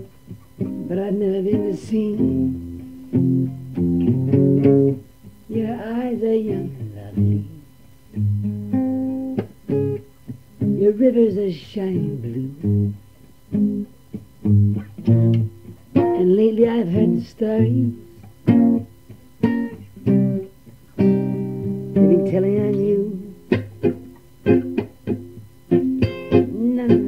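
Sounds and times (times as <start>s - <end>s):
acoustic guitar strumming: 0.0s - 11.1s, 11.9s - 27.0s
man singing: 0.9s - 2.5s, 5.5s - 7.7s, 10.8s - 12.7s, 16.2s - 18.0s, 22.0s - 23.5s, 26.4s - 27.0s.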